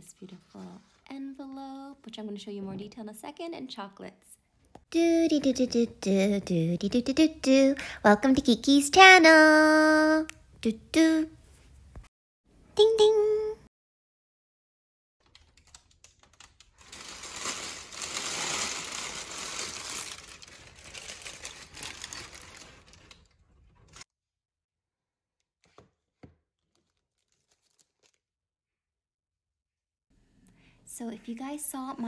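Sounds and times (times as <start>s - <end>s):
paper bag rustling and crinkling: 15.2s - 24.1s, 25.6s - 28.2s.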